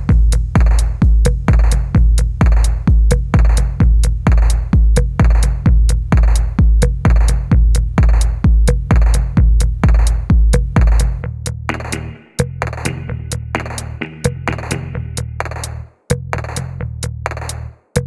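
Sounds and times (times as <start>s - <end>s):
electronic music with drum-machine beat: 0.0s - 18.0s.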